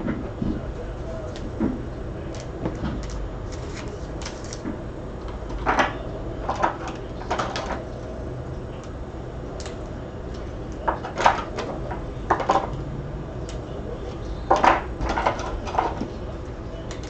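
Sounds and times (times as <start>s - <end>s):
low steady hum: 0.0s - 17.0s
card packaging rustling and clicking: 2.3s - 4.6s.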